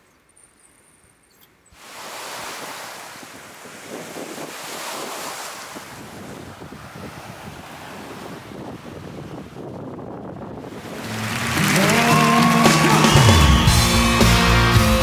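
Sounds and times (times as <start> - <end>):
lake waves lapping and splashing: 1.7 - 13.4
wind buffeting microphone: 1.8 - 12.1.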